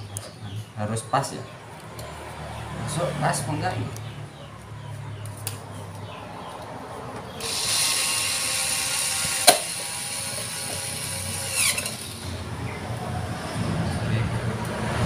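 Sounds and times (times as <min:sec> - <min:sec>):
electric screwdriver running: 0:07.4 - 0:12.5.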